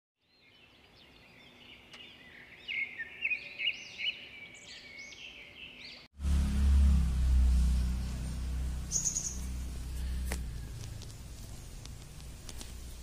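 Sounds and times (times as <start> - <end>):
birds chirping and whistling: 0.4 - 6.1, 7.6 - 10.9
loud low rumble: 6.2 - 12.9.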